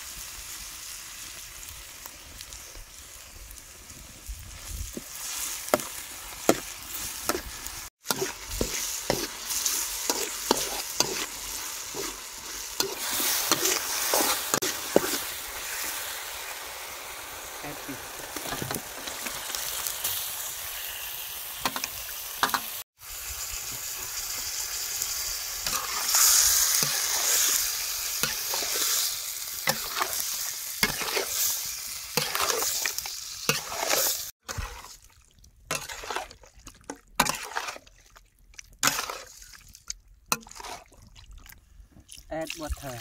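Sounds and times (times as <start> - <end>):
fish sizzling in hot oil: 0.0 - 35.1
metal spatula scraping wok: 5.2 - 16.0, 25.6 - 35.0, 35.7 - 36.3, 37.2 - 37.8, 38.8 - 39.3.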